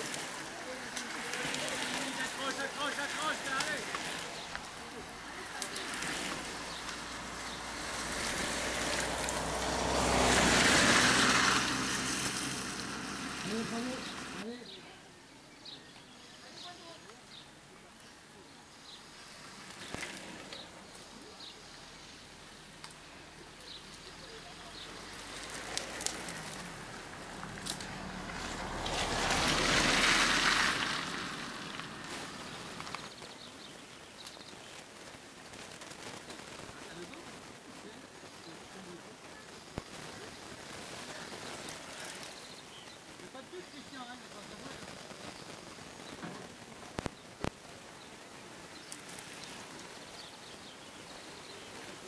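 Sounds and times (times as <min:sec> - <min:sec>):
tyres hissing on wet road: 0:00.0 - 0:14.6, 0:18.8 - 0:34.9, 0:36.7 - 0:52.0
faint clicks: 0:22.8 - 0:23.0.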